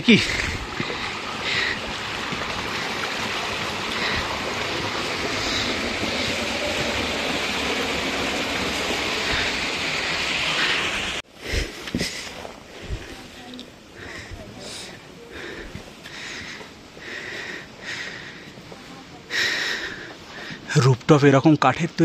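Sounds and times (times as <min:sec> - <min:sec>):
water pouring down stone wall: 0:00.0 - 0:11.2.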